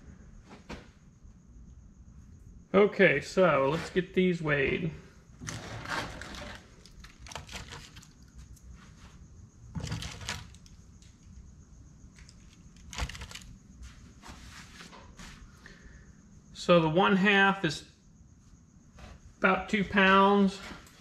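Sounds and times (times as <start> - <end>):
wire rustling: 12.1 - 15.4.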